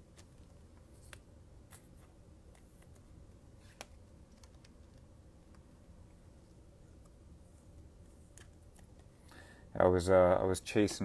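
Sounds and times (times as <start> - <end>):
low steady hum: 0.0 - 11.0
trading cards flipped by hand: 0.1 - 5.6.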